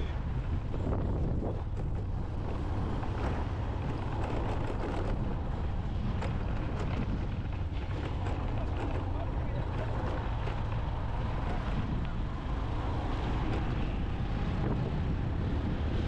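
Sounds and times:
motorcycle engine running: 0.0 - 16.0
wind buffeting microphone: 0.0 - 16.0.

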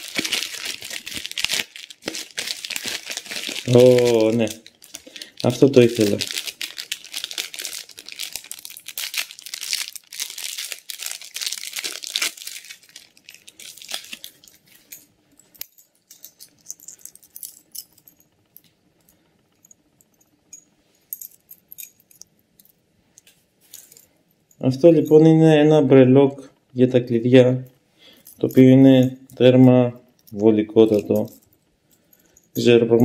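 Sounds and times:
plastic bag crinkling and tearing: 0.0 - 14.6
small metallic clinks: 14.3 - 25.2, 28.1 - 32.7.

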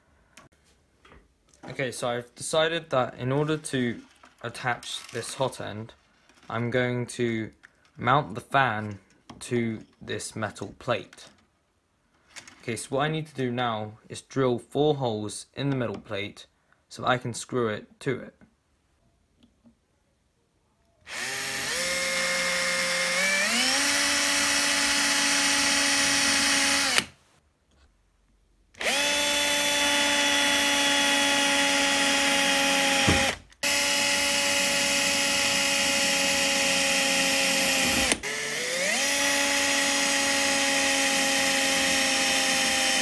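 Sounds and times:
cordless drill motor whining: 21.1 - 27.1, 28.8 - 43.0.

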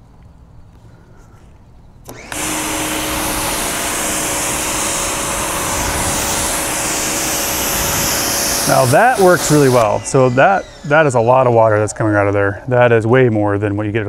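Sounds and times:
pressure washer spray hissing: 2.1 - 12.0.

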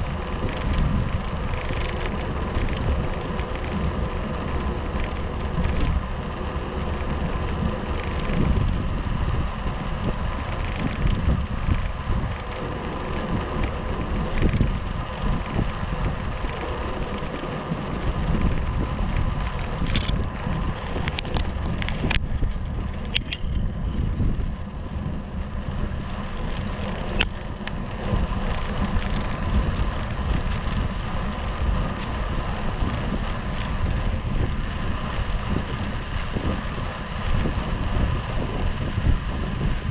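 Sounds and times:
bicycle tyres rolling on tarmac: 0.0 - 39.9
wind buffeting microphone: 0.0 - 39.9
sharp clicks or rattles: 0.1 - 6.0, 6.8 - 8.8, 10.1 - 23.7, 26.4 - 34.0.

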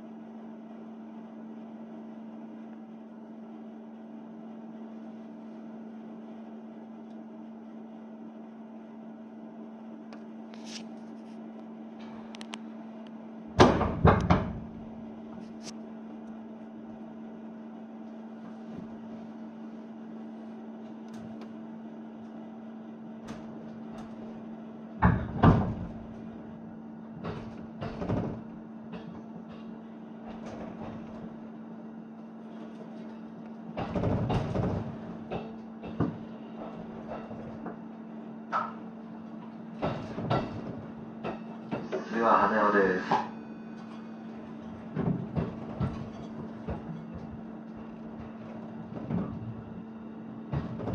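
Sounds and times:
train carriage equipment hum: 3.1 - 50.9
loud knocks and clunks: 13.5 - 15.0, 23.2 - 31.6, 33.7 - 42.2, 43.0 - 50.9.

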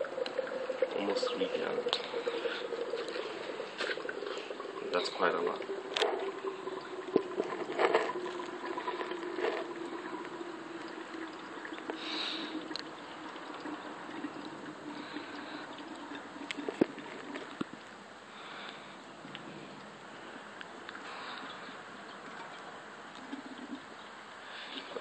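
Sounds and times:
fluid pouring from plastic jug: 0.0 - 17.9.

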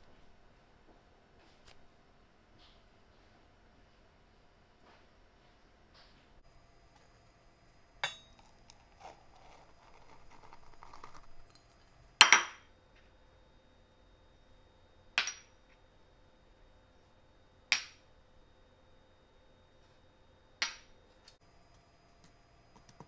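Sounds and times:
cups clinking on metal bowl: 8.0 - 11.6.

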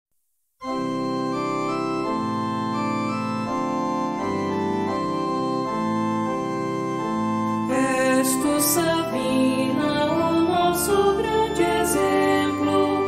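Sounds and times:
organ-like keyboard chords: 0.6 - 13.0.

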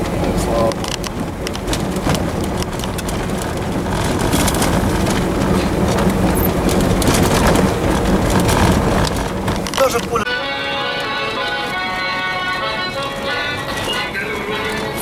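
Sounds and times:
car engine running: 0.0 - 10.3, 11.1 - 15.0
road noise: 0.0 - 15.0
car body knocks and rattles: 0.8 - 10.2.

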